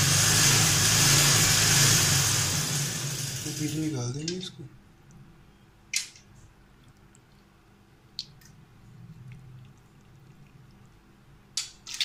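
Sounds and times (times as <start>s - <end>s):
low steady hum: 3.4s - 12.0s
quiet squelching of wet meat: 6.7s - 11.1s.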